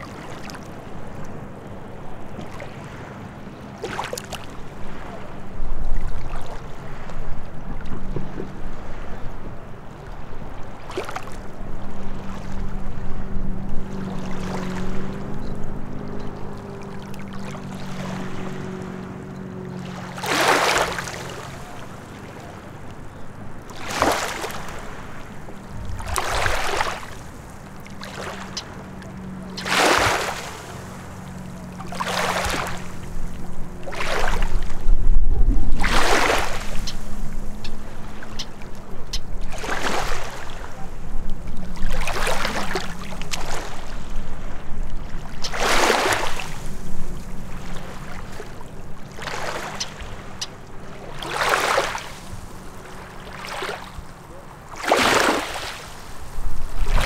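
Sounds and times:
low steady hum: 0.0 - 51.2
small waves lapping on rocks: 3.8 - 5.2, 10.5 - 11.4, 19.8 - 34.8, 35.6 - 57.0
deep rumble: 24.8 - 27.9, 32.4 - 38.2.

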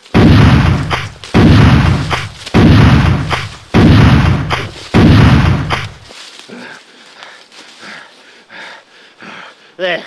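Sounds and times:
gunshots with booming tail: 0.1 - 6.0.

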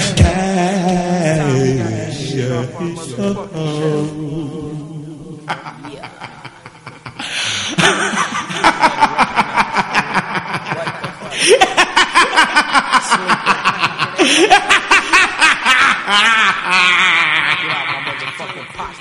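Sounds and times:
person laughing hard: 5.5 - 18.7.

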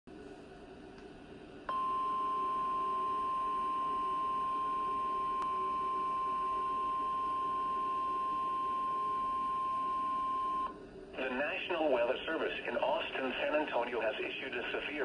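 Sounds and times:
long steady alarm beep: 1.7 - 10.7.

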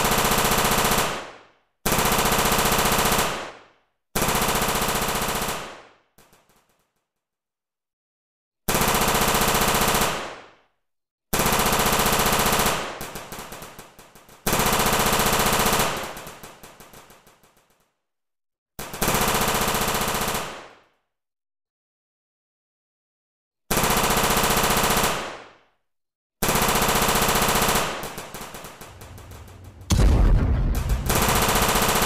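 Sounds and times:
machine-gun fire: 26.4 - 32.0.

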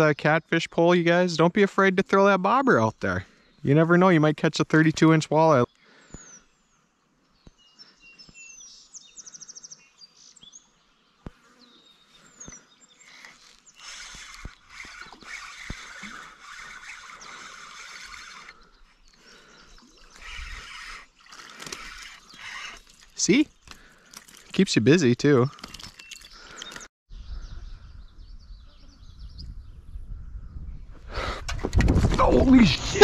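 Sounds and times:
birds chirping: 0.0 - 31.5
fishing reel being cranked: 13.0 - 18.7, 19.8 - 24.6.

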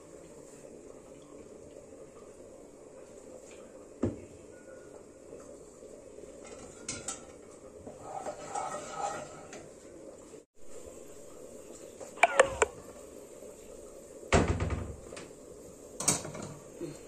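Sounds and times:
steady low hiss: 9.5 - 17.0.

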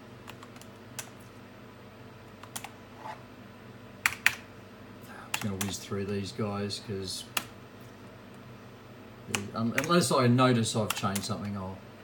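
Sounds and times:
steady low hum: 0.0 - 12.0
computer keys clicking: 0.2 - 1.2, 2.4 - 2.7, 5.3 - 5.8, 9.3 - 10.0, 10.8 - 11.3.

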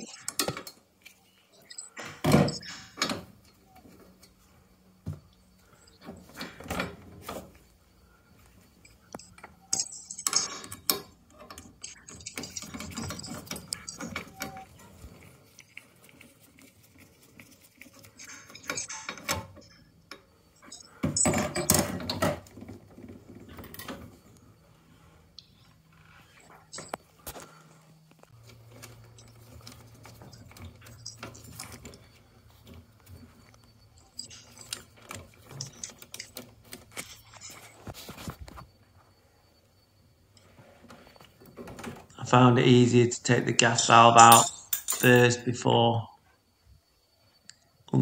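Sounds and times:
screwdriver clinking and scraping metal: 0.0 - 3.6, 8.8 - 24.2, 26.3 - 27.4, 28.1 - 38.6, 43.6 - 45.4.

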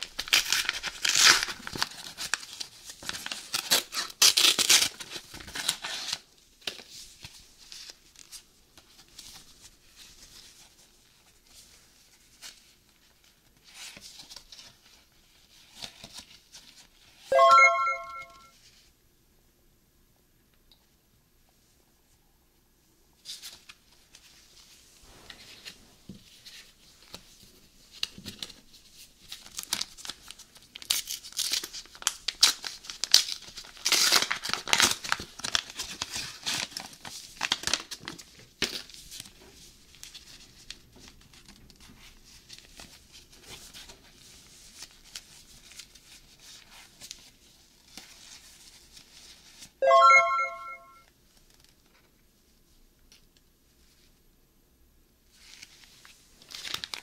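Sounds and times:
paper wrapper tearing and crinkling: 0.0 - 6.8, 29.2 - 39.0, 56.4 - 57.0
short loud pitched tone: 17.3 - 18.5, 49.8 - 51.0.

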